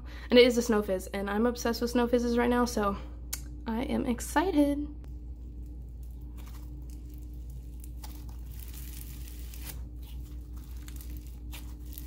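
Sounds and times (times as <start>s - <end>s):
low steady hum: 0.0s - 12.0s
slime crackling and tearing: 5.1s - 12.0s.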